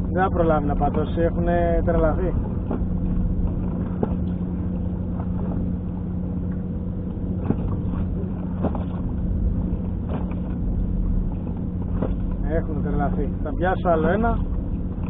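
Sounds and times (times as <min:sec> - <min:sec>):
boat engine idling: 0:00.0 - 0:15.0.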